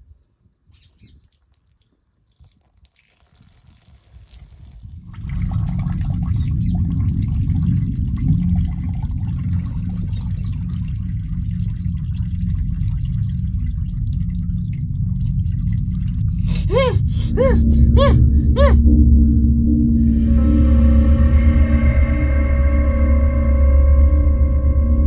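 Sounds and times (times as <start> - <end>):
wet dripping: 0.0 - 16.4
low steady rumble: 4.8 - 25.0.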